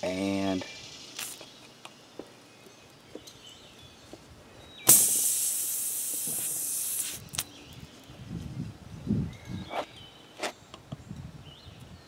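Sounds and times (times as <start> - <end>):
air hissing out of tire: 4.9 - 7.4.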